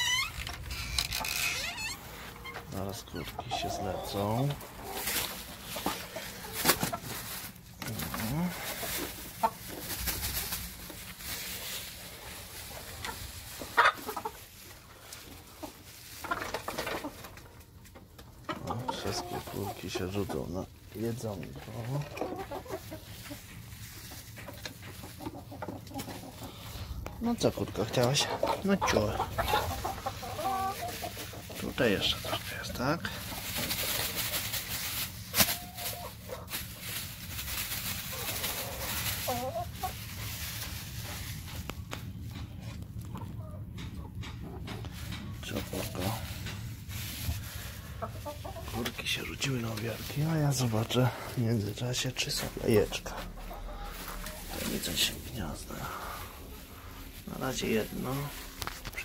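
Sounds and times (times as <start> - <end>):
hens clucking: 0.0 - 59.0
plastic bag and straw rustling: 0.0 - 59.0.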